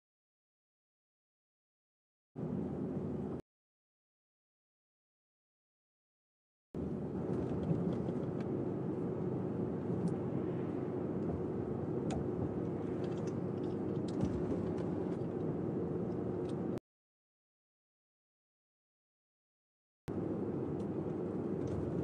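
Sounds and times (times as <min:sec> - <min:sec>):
car engine and road rumble: 0:02.4 - 0:03.4, 0:06.8 - 0:16.8, 0:20.1 - 0:22.0.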